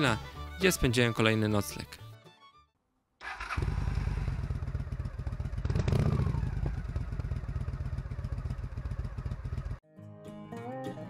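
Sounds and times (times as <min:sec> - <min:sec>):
motorcycle engine running: 0:03.2 - 0:09.8.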